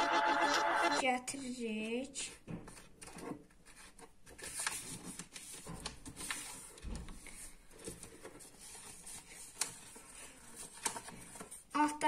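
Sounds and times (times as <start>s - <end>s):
paper rustling and creasing: 2.6s - 11.7s.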